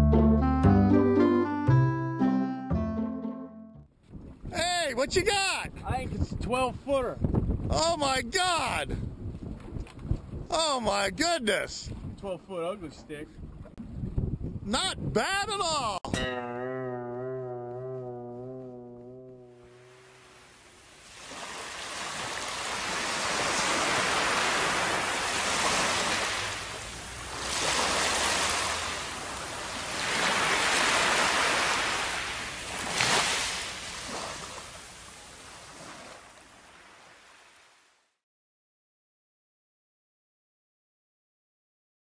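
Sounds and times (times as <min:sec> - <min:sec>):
ocean surf on a beach: 0:19.7 - 0:37.8.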